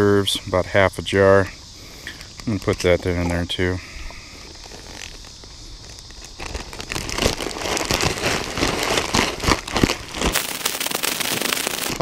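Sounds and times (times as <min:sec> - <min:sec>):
plastic bag crinkling: 0:04.3 - 0:12.0.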